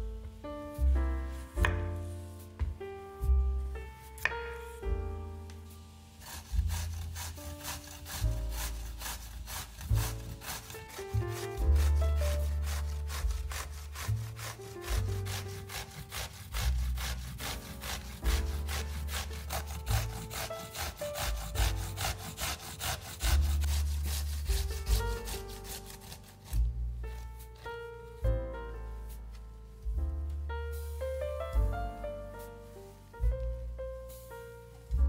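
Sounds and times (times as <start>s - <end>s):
background music: 0.0s - 35.0s
vegetable chopping strokes: 0.8s - 3.4s, 4.1s - 5.0s, 6.2s - 28.3s.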